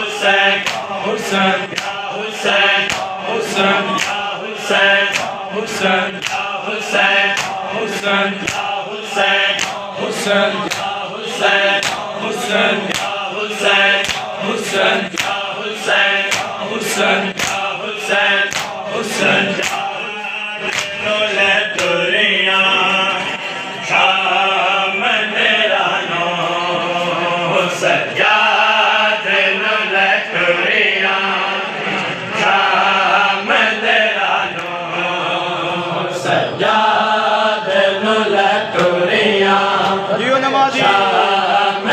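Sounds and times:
men chanting in unison: 0.0s - 41.9s
hands slapping chests: 0.6s - 1.0s, 1.7s - 2.1s, 2.8s - 4.3s, 5.0s - 8.8s, 9.4s - 11.0s, 11.6s - 17.7s, 18.3s - 20.0s, 20.6s - 22.0s.

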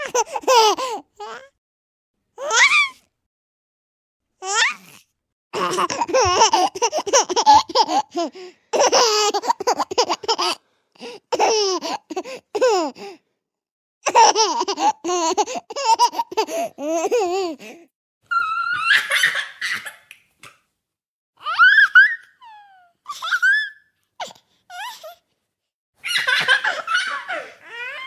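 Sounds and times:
baby laughing: 0.0s - 1.4s, 5.6s - 10.6s, 11.3s - 13.0s, 14.0s - 17.7s, 18.3s - 20.1s, 21.4s - 25.1s, 26.0s - 28.0s.

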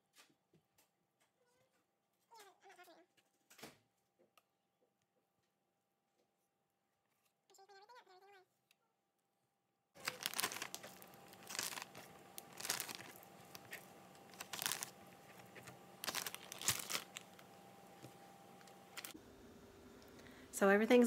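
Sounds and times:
plastic bag crinkling: 10.0s - 19.2s.

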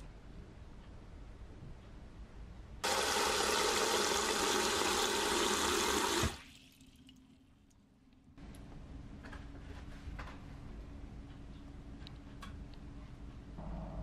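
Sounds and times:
water gushing into metal bowl: 2.8s - 7.0s.

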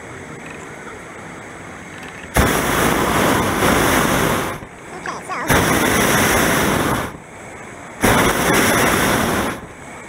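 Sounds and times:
propane burner blast: 2.3s - 10.0s.

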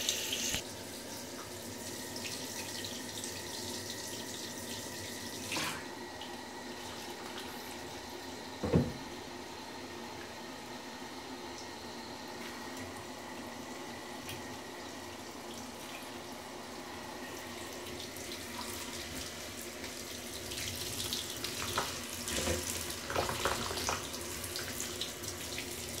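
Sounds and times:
shower spray on dog's coat: 0.0s - 0.6s.

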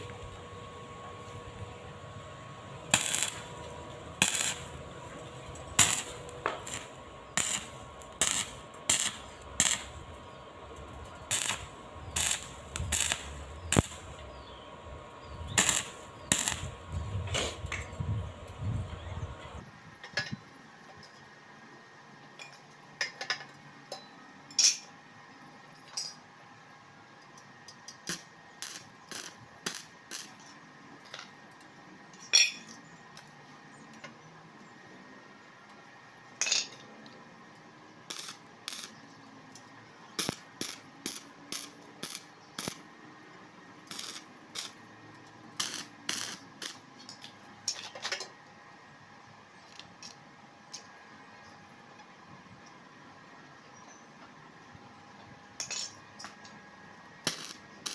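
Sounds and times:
metal tools clinking on steel: 25.7s - 26.3s, 32.2s - 32.8s, 36.4s - 36.8s, 55.6s - 56.4s.

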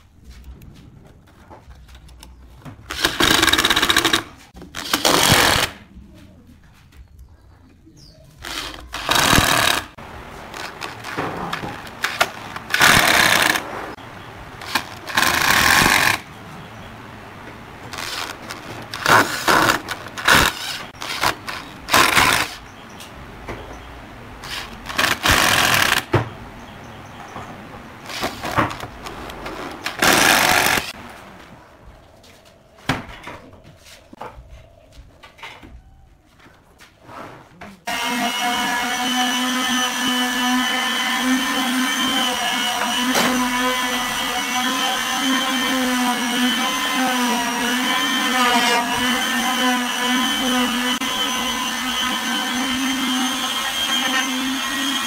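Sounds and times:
power drill driving screws: 2.9s - 5.8s, 8.4s - 13.7s, 14.6s - 16.2s, 17.9s - 22.6s, 24.4s - 26.1s, 28.0s - 31.0s, 37.9s - 55.0s.

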